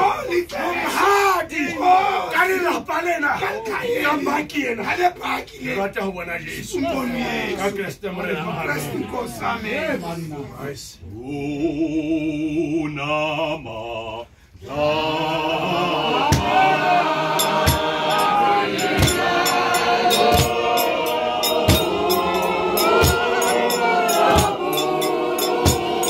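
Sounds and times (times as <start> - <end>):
singing voices: 0.0 - 26.0
music with low thump: 16.2 - 16.7, 17.3 - 26.0.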